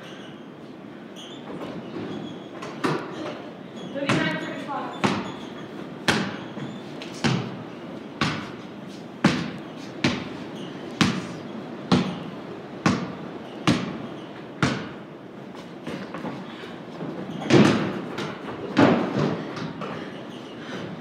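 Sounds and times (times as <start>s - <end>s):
basketball bouncing on wooden floor: 3.9s - 7.6s, 8.2s - 8.6s, 9.2s - 15.0s, 17.2s - 19.9s.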